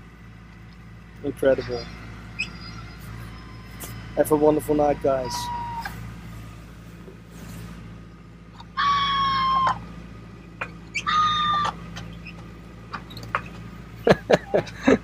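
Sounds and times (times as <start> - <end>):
boat engine droning: 0.0 - 15.0
high held cries: 1.4 - 6.1, 8.6 - 9.9, 10.9 - 11.8.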